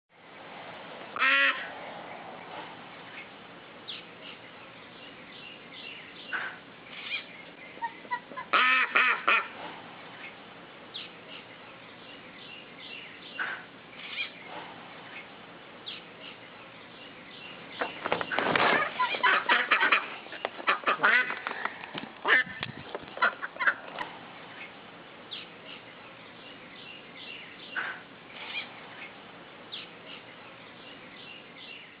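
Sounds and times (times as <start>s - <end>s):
ducks quacking: 1.2s - 1.7s, 6.3s - 10.4s, 13.3s - 13.8s, 18.6s - 24.1s, 27.6s - 28.7s.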